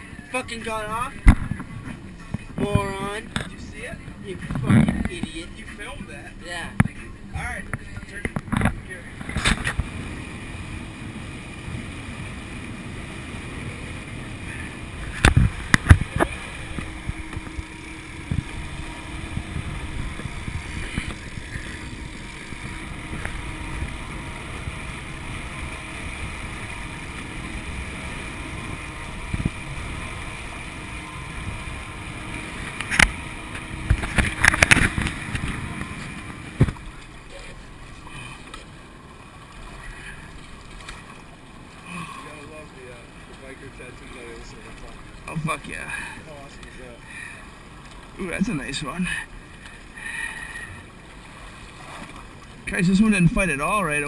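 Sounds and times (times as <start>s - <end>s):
outboard motor boat engine: 0.0s - 54.0s
wind on microphone: 14.3s - 37.0s.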